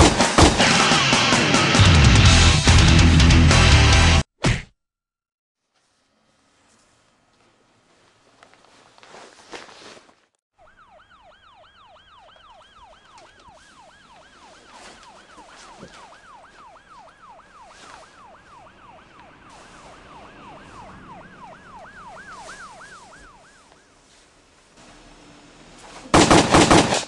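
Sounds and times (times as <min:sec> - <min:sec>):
siren yelping: 0:10.5 - 0:24.0.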